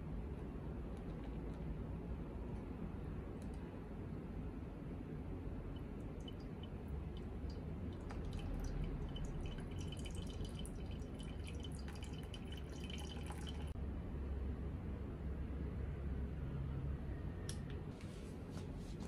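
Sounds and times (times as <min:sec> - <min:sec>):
water pouring and dripping: 0:06.2 - 0:13.8.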